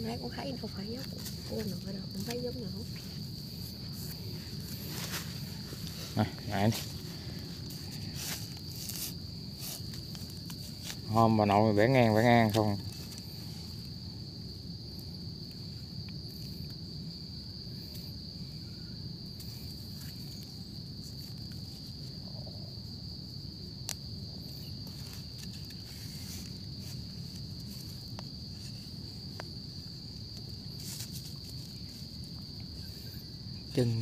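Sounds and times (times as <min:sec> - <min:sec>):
insects trilling: 0:00.0 - 0:34.0
clicks and scrapes in leaf litter: 0:00.6 - 0:11.2, 0:24.5 - 0:29.4, 0:30.2 - 0:34.0.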